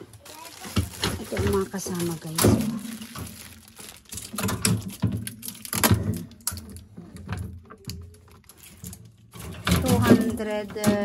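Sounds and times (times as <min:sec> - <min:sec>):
wire basket rattling: 0:00.0 - 0:07.5
plastic bags rustling: 0:00.0 - 0:11.0.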